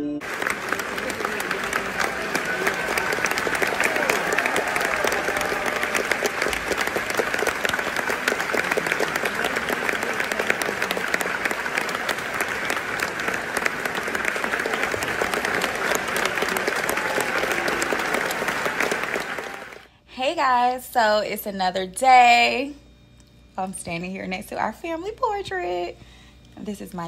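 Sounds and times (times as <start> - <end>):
audience applauding: 0.2 - 19.9.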